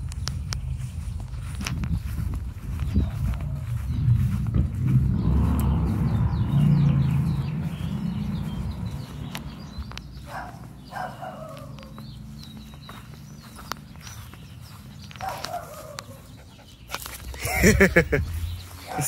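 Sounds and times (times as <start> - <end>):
low rumbling noise: 0.0 - 10.2
small birds chirping: 0.0 - 19.0.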